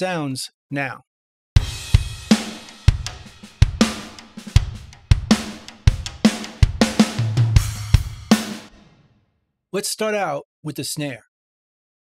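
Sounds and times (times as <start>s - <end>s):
kick drum: 1.6s - 8.3s
snare drum hits: 1.6s - 8.8s.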